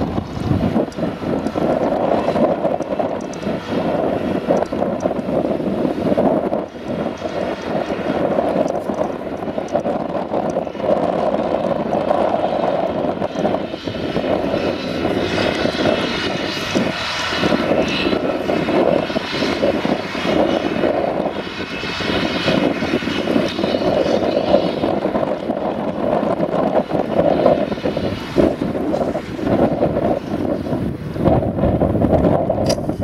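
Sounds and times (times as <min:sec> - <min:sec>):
forage harvester engine drone: 0:00.0 - 0:33.0.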